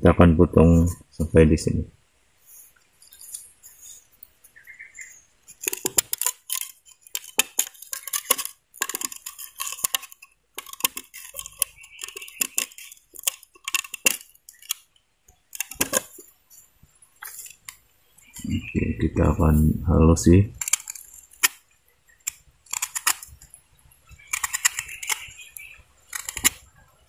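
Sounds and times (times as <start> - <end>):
knife cutting bamboo: 5.5 - 14.9, 15.5 - 16.3, 20.6 - 21.6, 22.2 - 23.5, 24.2 - 26.6.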